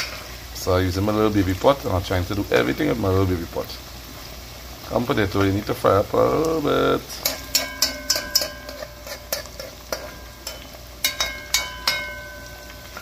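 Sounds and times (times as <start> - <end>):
oil sizzling: 0.0 - 13.0
metal spoon knocking metal pot: 7.2 - 13.0.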